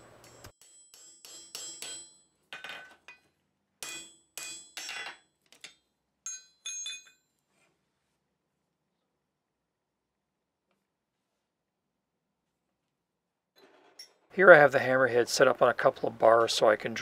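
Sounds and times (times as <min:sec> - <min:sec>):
hammer striking punch on metal: 0:00.4 - 0:02.2.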